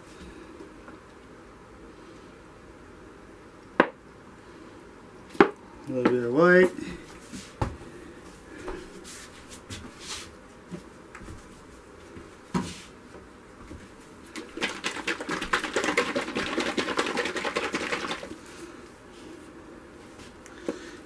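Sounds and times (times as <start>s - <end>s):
paint bottle rattling: 14.3s - 18.4s.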